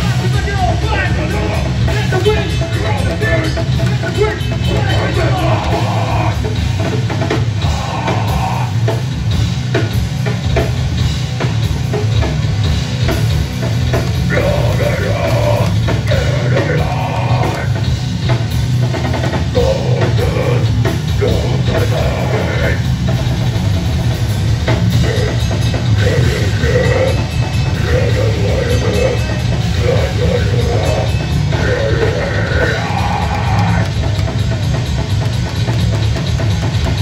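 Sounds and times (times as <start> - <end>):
bass guitar: 0.0 - 37.0
drum kit: 0.0 - 37.0
electric guitar: 0.0 - 37.0
person singing: 2.8 - 6.5, 7.6 - 8.8, 14.3 - 17.9, 19.5 - 22.9, 24.9 - 34.2.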